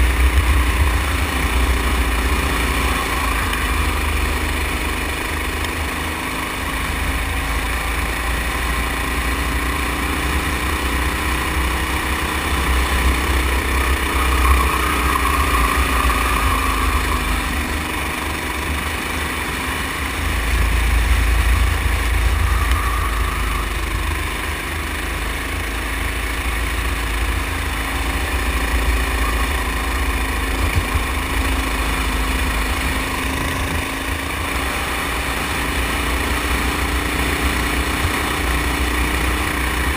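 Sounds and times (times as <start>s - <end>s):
small engine revving: 0.0s - 39.9s.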